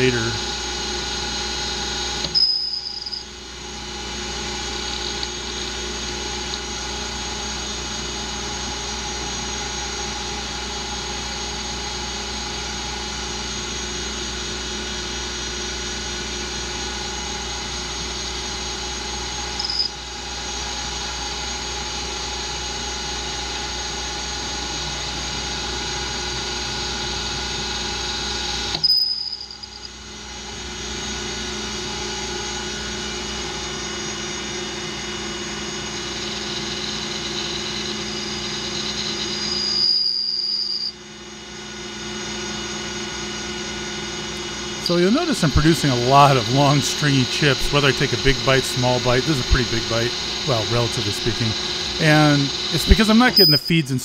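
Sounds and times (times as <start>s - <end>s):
lathe drive whine: 0.0s - 54.0s
cutting tool squealing: 2.2s - 3.3s, 19.6s - 20.0s, 28.8s - 29.9s, 36.4s - 41.0s, 45.7s - 54.0s.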